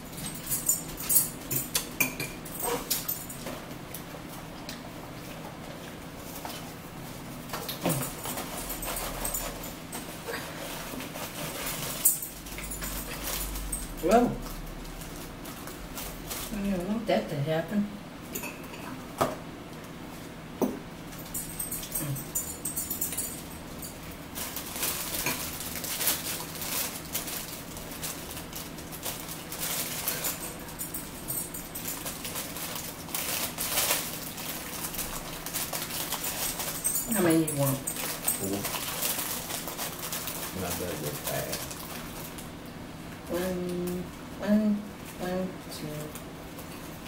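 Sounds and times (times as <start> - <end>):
plastic wrapper crinkling: 10.3 - 16.8, 24.3 - 30.8, 31.8 - 42.5.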